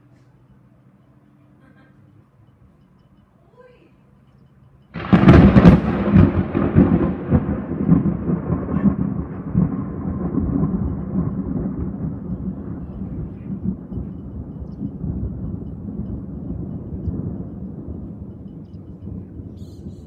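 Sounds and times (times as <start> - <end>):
thunder crack: 4.9 - 20.0
thunder rumble: 4.9 - 20.0.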